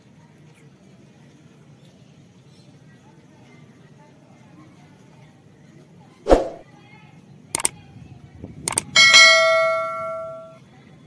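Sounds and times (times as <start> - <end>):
mouse clicks: 8.7 - 8.9
notification bell ding: 9.0 - 10.6.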